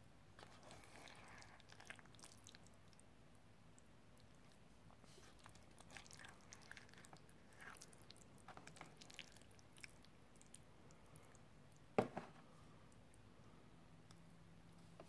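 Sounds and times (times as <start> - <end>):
chewing food: 0.4 - 3.1, 3.7 - 11.9.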